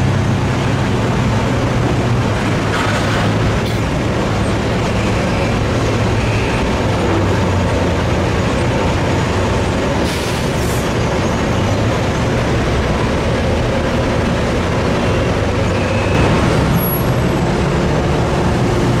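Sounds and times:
diesel truck engine running: 0.0 - 19.0
steady industrial din: 10.8 - 19.0.

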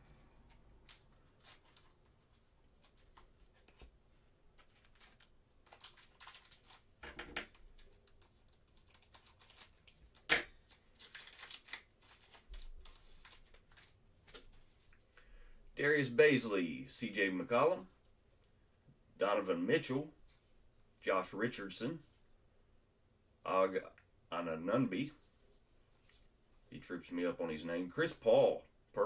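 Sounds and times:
wrapper tearing and rustling: 4.6 - 14.9.

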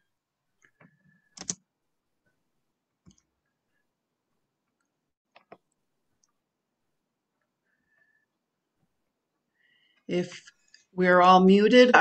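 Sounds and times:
computer mouse clicks: 0.6 - 1.6, 4.7 - 6.4.

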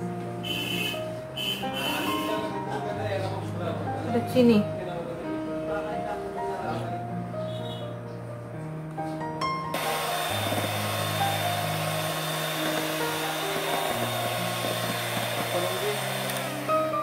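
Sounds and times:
background music: 0.0 - 17.0
electric hand mixer whining: 9.7 - 17.0.

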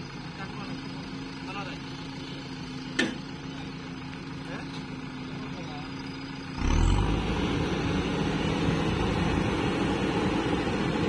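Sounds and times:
heavy diesel engine revving: 5.6 - 11.0.

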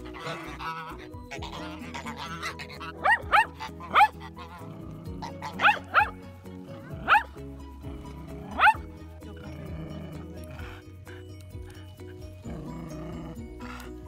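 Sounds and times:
background music: 0.0 - 14.0
dog barking: 3.0 - 4.2, 5.6 - 6.2, 7.0 - 7.3, 8.6 - 8.8.

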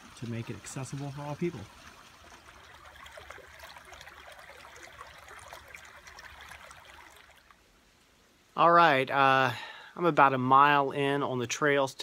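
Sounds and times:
creek trickling over stones: 0.0 - 9.0.

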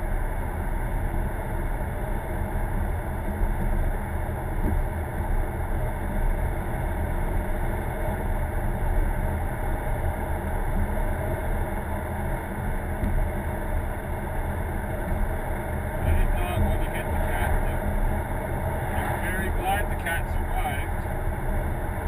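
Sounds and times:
road noise: 3.9 - 22.0
car engine: 15.6 - 22.0.

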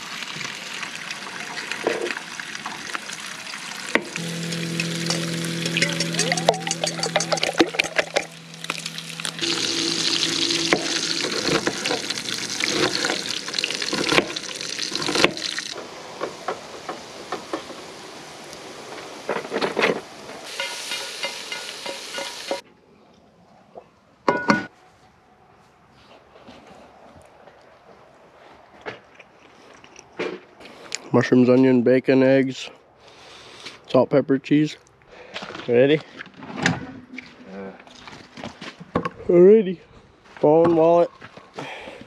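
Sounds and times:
food sizzling in frying pan: 2.9 - 15.8, 20.4 - 22.6
steady low hum: 4.0 - 14.6
utensil scraping pan: 4.0 - 15.6.

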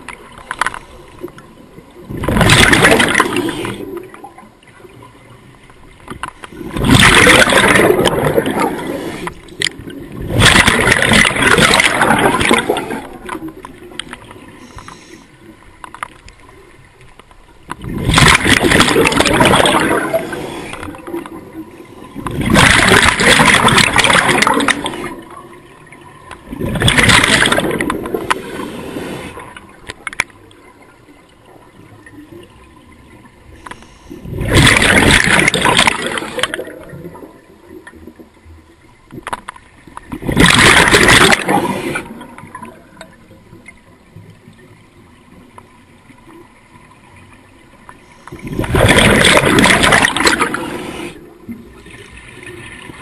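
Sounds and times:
exhaled bubbles rushing: 1.9 - 4.4, 6.5 - 14.5, 17.8 - 29.8, 34.2 - 38.2, 40.0 - 43.1, 48.4 - 53.0.

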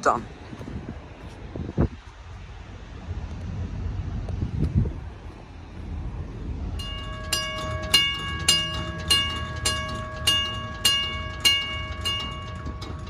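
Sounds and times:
crossing signal bell ringing: 6.7 - 13.0.

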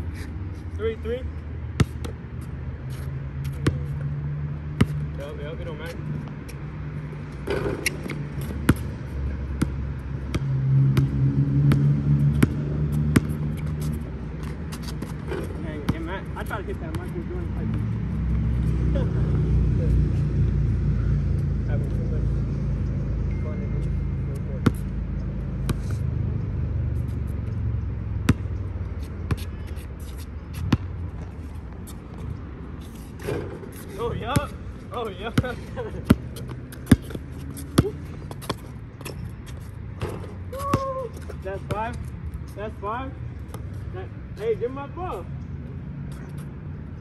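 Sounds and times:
passing vehicle hum: 0.0 - 47.0
basketball bouncing on asphalt: 1.6 - 2.6, 3.4 - 4.0, 4.6 - 18.4, 24.4 - 42.5, 43.4 - 43.9.

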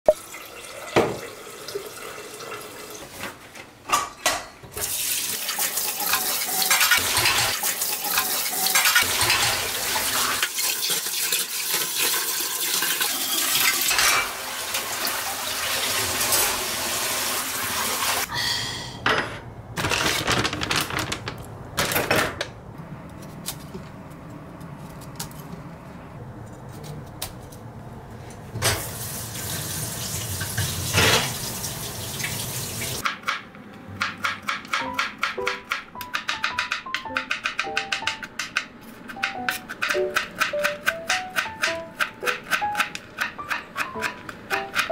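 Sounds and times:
tap water running: 0.1 - 3.2, 4.8 - 18.3, 28.6 - 33.1.

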